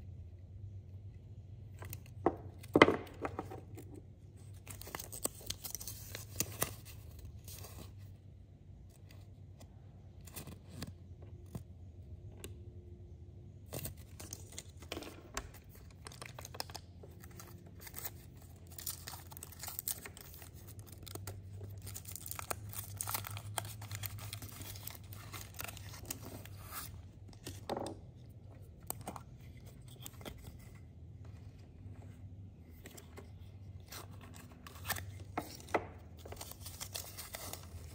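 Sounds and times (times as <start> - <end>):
foil wrapper crinkling and tearing: 15.8 - 26.6, 36.2 - 37.9.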